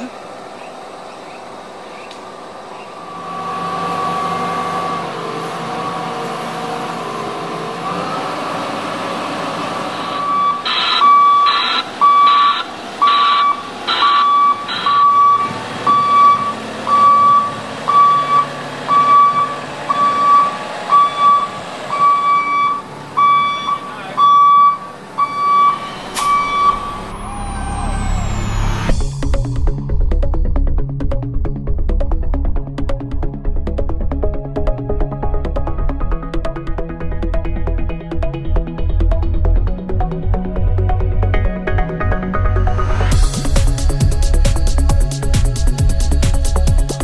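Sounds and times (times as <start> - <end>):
diesel engine running: 0.0 - 47.0
electronic warning beeper: 9.9 - 28.8.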